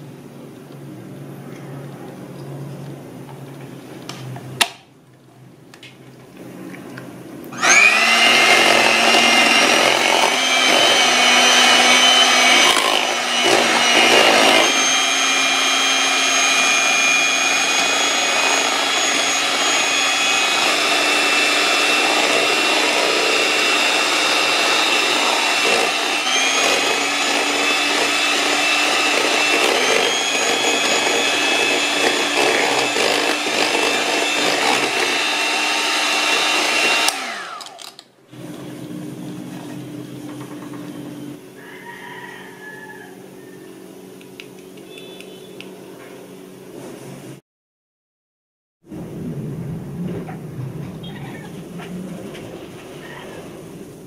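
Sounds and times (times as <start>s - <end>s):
electric hand mixer whining: 7.5s - 41.6s.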